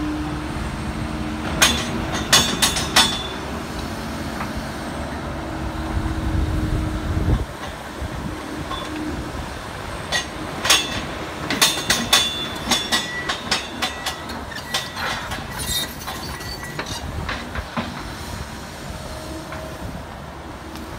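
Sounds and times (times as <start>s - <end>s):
excavator diesel engine running: 0.0s - 20.9s
metallic clanks and squeaks: 1.6s - 3.4s, 8.6s - 9.1s, 10.1s - 18.0s.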